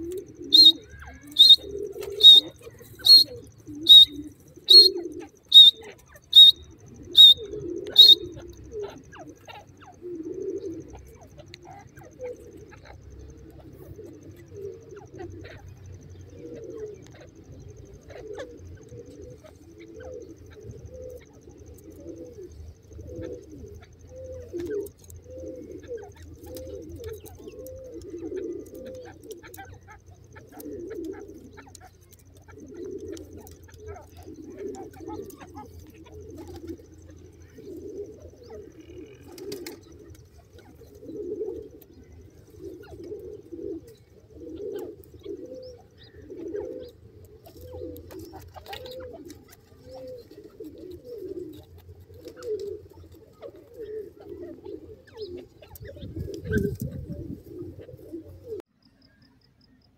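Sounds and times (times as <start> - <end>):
bird sharp high calls: 0.0 - 22.3
soft low cooing: 0.0 - 58.7.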